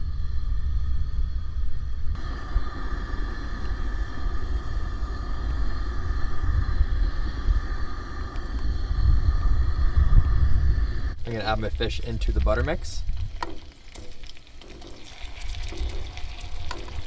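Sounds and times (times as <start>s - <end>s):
camp stove burner rumbling: 0.0s - 17.0s.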